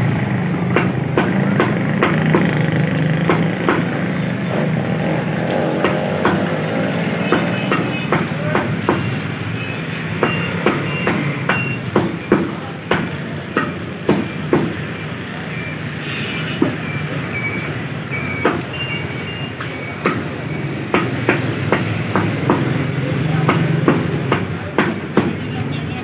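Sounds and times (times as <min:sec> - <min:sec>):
cleaver chopping on wooden block: 0:05.4 - 0:09.1, 0:10.2 - 0:14.8, 0:18.4 - 0:18.7, 0:20.0 - 0:20.3, 0:20.9 - 0:25.4.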